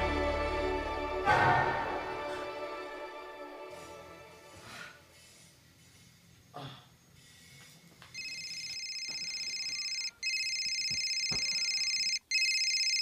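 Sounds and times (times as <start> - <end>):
phone ringtone trill: 8.2 - 13.0.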